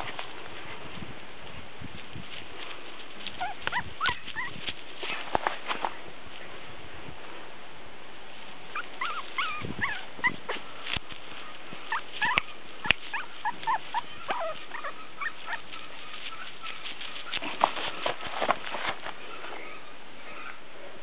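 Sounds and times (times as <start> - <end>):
dry leaves crackling: 0.0 - 6.4, 10.2 - 19.5
puppy yipping and whimpering: 3.3 - 4.6, 8.7 - 10.6, 11.4 - 17.4.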